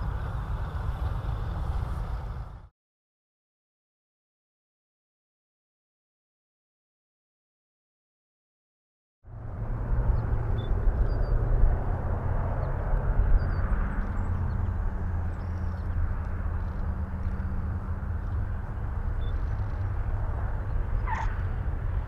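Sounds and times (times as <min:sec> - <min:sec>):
propeller engines droning: 0:00.0 - 0:02.7, 0:09.3 - 0:22.0
tyre squeal: 0:21.0 - 0:21.4.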